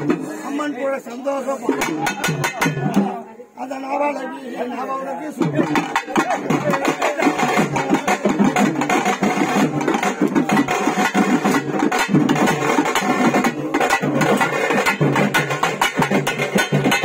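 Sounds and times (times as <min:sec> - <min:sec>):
fast stick-beaten drumming: 0:01.8 - 0:03.1, 0:05.4 - 0:17.0.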